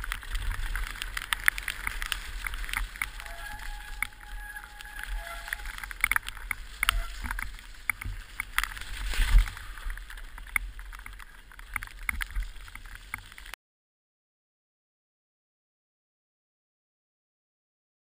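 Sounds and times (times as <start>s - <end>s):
mountain bike rattling over trail: 0.0s - 13.6s
tyres running through mud: 0.0s - 13.6s.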